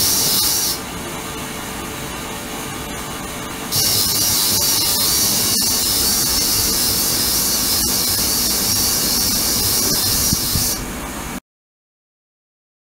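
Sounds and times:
ultrasonic cleaner hissing: 0:00.0 - 0:00.9, 0:03.7 - 0:11.2.

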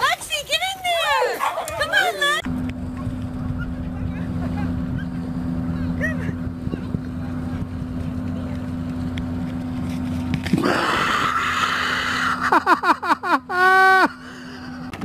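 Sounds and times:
low rumble with faint hum: 0:01.4 - 0:15.0.

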